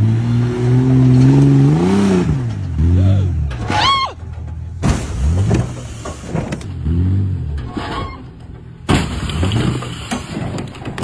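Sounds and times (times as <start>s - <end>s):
engine revving: 0.0s - 3.9s, 4.8s - 7.8s
vehicle body striking rock: 3.5s - 6.9s, 7.6s - 11.0s.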